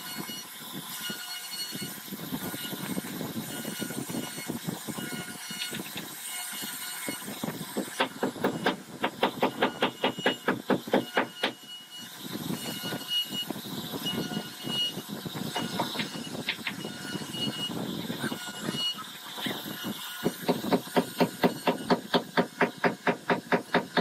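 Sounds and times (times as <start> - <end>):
router spindle cutting wood: 0.0 - 24.0
rapid sharp knocks: 7.0 - 11.6, 20.2 - 24.0.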